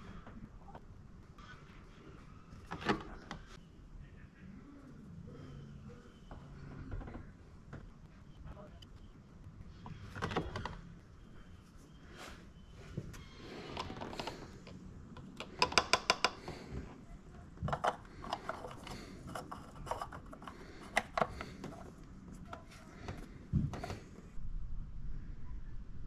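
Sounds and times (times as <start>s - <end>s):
plastic clicks and knocks: 13.7s - 16.6s.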